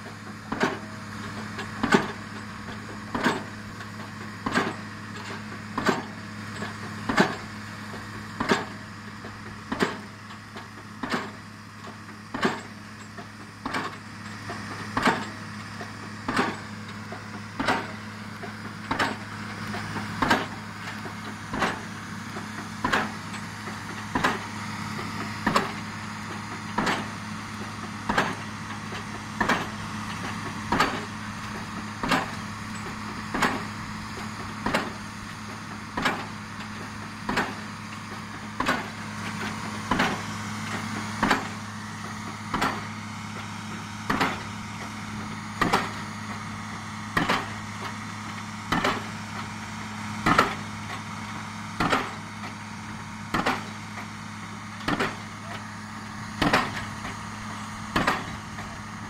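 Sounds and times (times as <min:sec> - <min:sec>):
rig engine humming: 0:00.0 - 0:59.0
pile hammer striking concrete pile: 0:41.2 - 0:41.6, 0:42.5 - 0:42.8, 0:44.1 - 0:44.4, 0:45.6 - 0:46.0, 0:47.2 - 0:47.5, 0:48.7 - 0:49.1, 0:50.2 - 0:50.6, 0:51.8 - 0:52.2, 0:53.3 - 0:53.7, 0:54.8 - 0:55.2, 0:56.4 - 0:56.9, 0:58.0 - 0:58.4.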